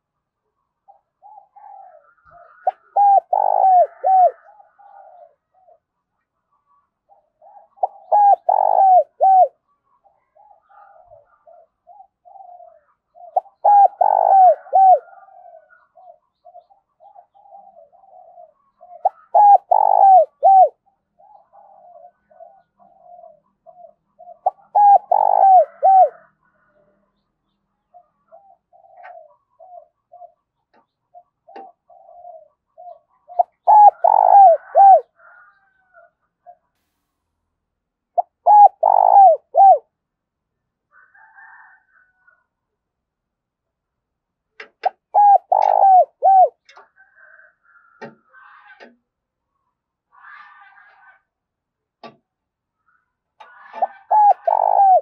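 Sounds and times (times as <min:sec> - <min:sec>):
dove cooing: 0:00.8 - 0:06.0, 0:07.0 - 0:26.9, 0:27.8 - 0:36.7, 0:38.2 - 0:39.9, 0:44.8 - 0:48.9, 0:53.4 - 0:55.0
softer lower coos: 0:33.4 - 0:35.1, 0:53.8 - 0:55.0.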